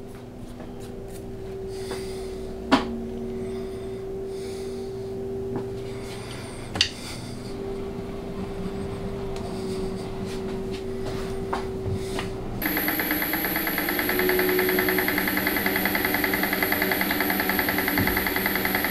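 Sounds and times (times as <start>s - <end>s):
electric motor humming: 12.6s - 18.9s
sharp clicks: 12.6s - 18.9s.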